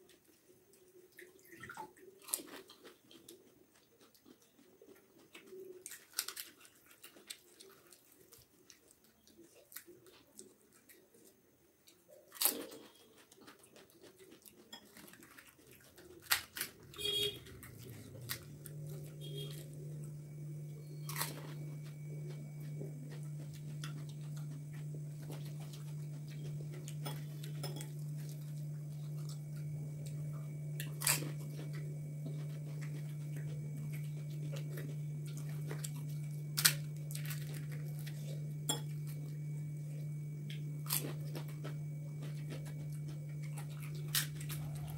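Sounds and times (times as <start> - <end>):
crunching and chewing: 0.0 - 44.9
crisp shells cracking: 15.0 - 16.9
low hum: 16.8 - 44.9.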